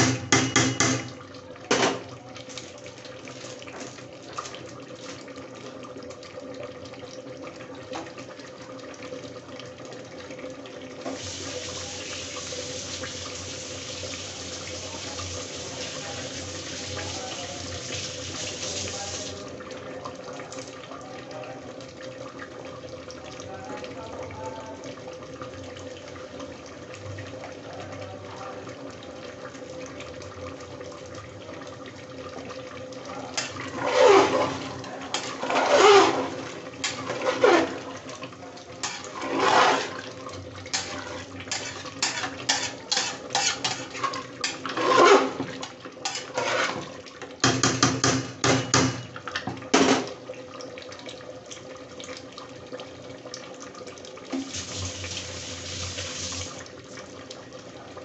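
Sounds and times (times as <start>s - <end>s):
ladle knocks on pot: 0.0s - 2.0s, 47.4s - 49.1s
cooking pot hissing: 11.1s - 19.3s, 54.5s - 56.6s
ladle scraping pot: 33.3s - 38.1s, 38.8s - 47.8s.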